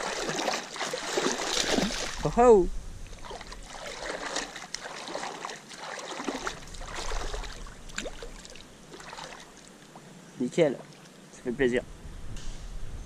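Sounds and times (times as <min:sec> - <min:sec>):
fish splashing at water surface: 0:00.0 - 0:02.3, 0:03.1 - 0:09.7.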